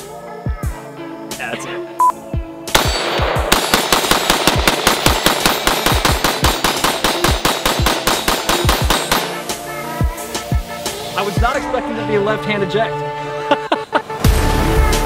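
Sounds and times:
rifle firing rapid shots: 2.7 - 9.4.

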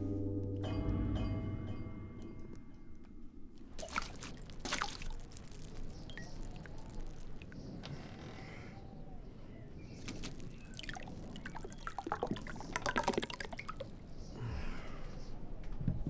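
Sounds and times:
liquid pouring into glass mug: 3.8 - 7.5, 10.4 - 13.9.

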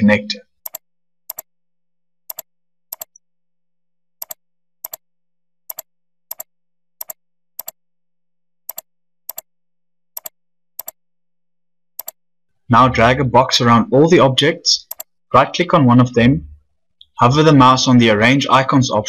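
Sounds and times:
computer mouse clicks: 0.7 - 1.5, 2.3 - 3.1, 4.2 - 5.0, 5.7 - 7.8, 8.7 - 9.5, 10.2 - 11.0, 12.0 - 12.2, 14.9 - 15.2.

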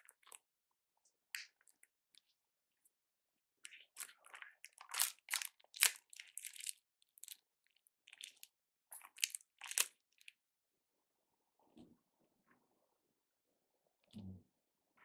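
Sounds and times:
close crinkling and crunching: 3.7 - 7.4, 8.1 - 10.3.

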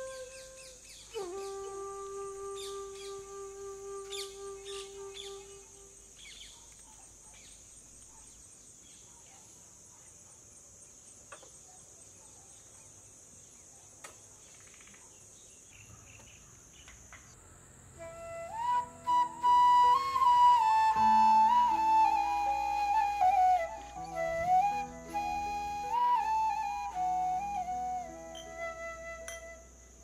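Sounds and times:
held flute note: 0.0 - 6.0, 18.0 - 30.0
insect chorus: 0.0 - 30.0.

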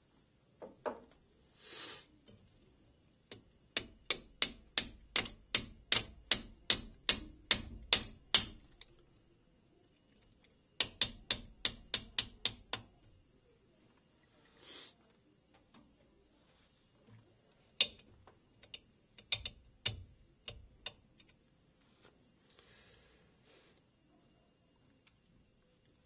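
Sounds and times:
small hammer tapping a pin: 3.3 - 8.9, 10.8 - 13.0, 17.8 - 21.4.

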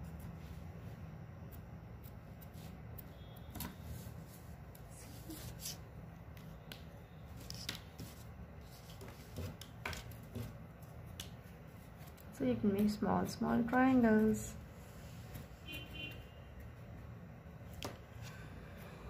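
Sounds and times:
low steady hum: 0.0 - 19.0
pens handled on a table: 7.4 - 12.3.

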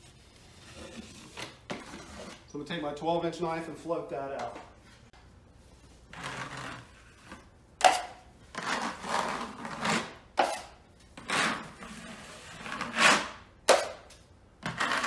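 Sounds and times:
taping knife scraping compound: 6.1 - 14.0, 14.6 - 15.0.

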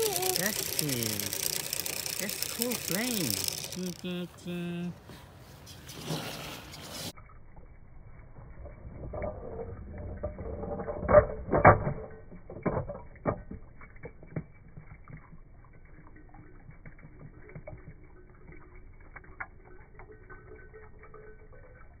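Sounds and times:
toy car clattering down slide: 0.0 - 4.0, 9.0 - 14.4.

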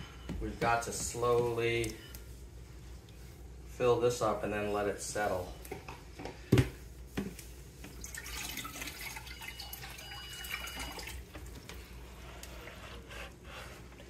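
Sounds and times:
water splashing in a bucket: 8.0 - 11.5.

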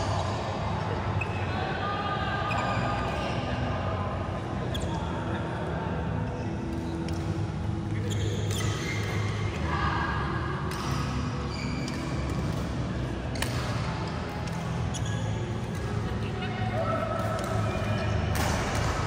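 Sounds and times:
racket hitting shuttlecock: 13.3 - 14.7, 18.3 - 19.0.

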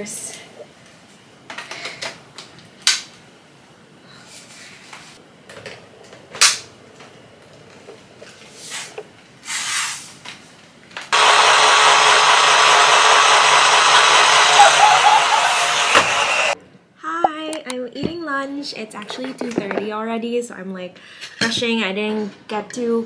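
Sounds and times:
vacuum cleaner running: 11.1 - 16.6.

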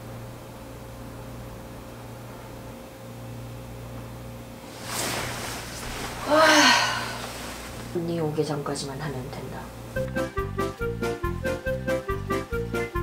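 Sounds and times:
low room hum: 0.0 - 11.6
bedding rustling: 4.6 - 8.4
woman's wordless effort sound: 6.2 - 7.5.

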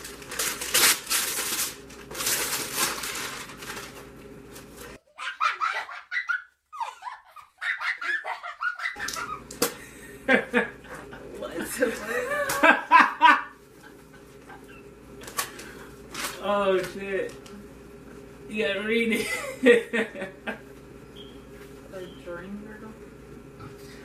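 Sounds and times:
paper and gift bag rustling: 0.0 - 5.0
people laughing: 5.1 - 14.9.

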